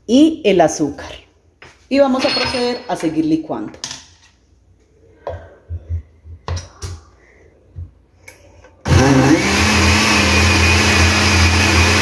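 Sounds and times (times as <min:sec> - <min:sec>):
blender running loudly: 0:08.9 - 0:12.0.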